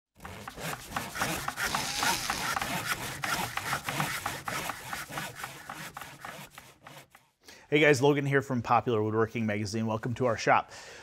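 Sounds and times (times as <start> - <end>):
tools scraping and rasping wood: 0.2 - 7.4.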